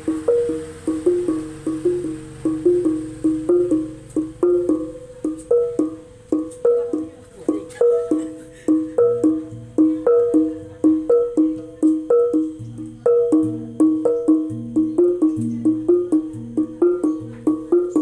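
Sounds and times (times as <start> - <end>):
deeper gong tone: 0.0 - 6.1
small gongs struck with mallets: 0.0 - 18.0.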